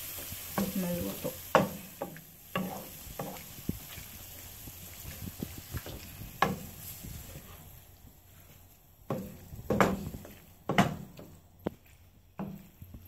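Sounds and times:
spatula scraping frying pan: 0.0s - 7.6s
faint sizzle: 0.0s - 13.0s.

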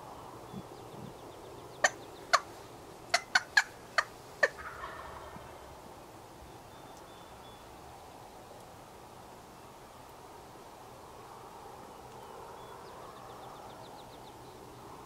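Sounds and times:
turkey clucks: 1.8s - 2.5s, 3.1s - 5.6s
turkey gobble: 1.8s - 2.5s, 3.1s - 5.6s.

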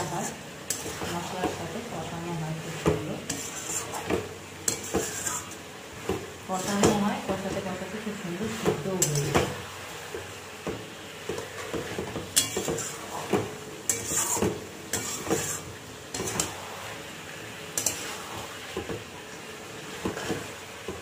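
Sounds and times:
spatula scraping metal pot: 0.0s - 1.8s, 2.7s - 7.3s, 11.4s - 16.6s, 17.8s - 18.5s
low sizzle: 0.0s - 21.0s.

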